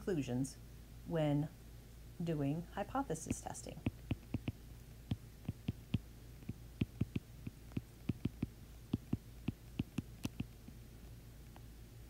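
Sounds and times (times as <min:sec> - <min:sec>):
faint low hum: 0:00.0 - 0:12.0
stylus tapping on tablet screen: 0:03.3 - 0:10.5.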